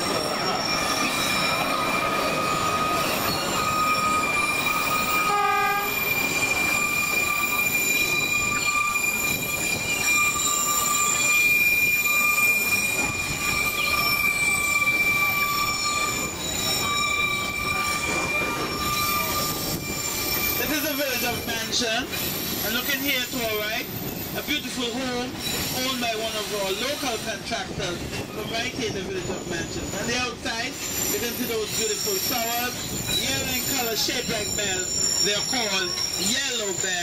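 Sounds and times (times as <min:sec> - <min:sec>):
rumble of running train: 0:00.0 - 0:37.0
train wheels squealing on rails: 0:00.0 - 0:37.0
train horn toot: 0:05.0 - 0:06.2.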